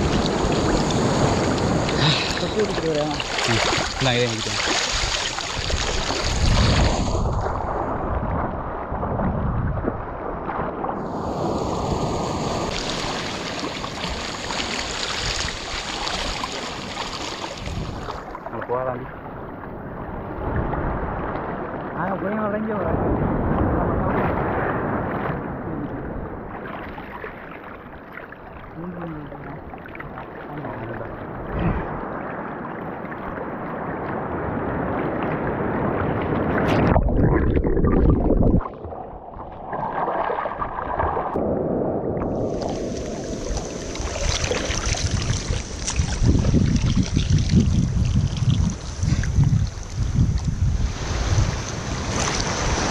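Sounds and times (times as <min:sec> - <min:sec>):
wind buffeting microphone: 0:00.0 - 0:18.3, 0:31.3 - 0:32.6, 0:40.6 - 0:52.9
sea water sloshing: 0:00.0 - 0:22.0, 0:23.4 - 0:52.9
hissing rush of surf: 0:11.0 - 0:16.5.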